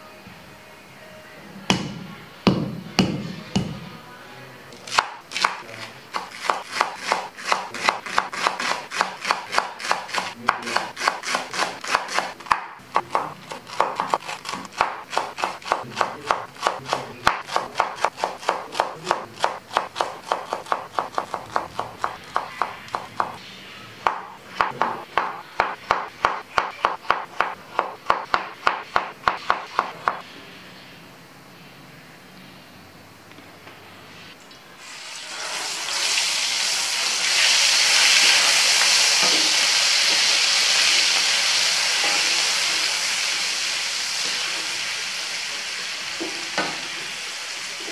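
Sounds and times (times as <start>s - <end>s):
knife chopping on wooden board: 1.7s - 3.8s, 4.9s - 23.4s, 24.0s - 30.2s.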